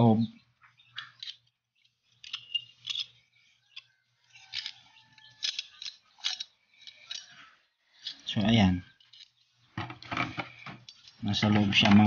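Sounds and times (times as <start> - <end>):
metal part scraping and clicking: 1.0 - 7.4.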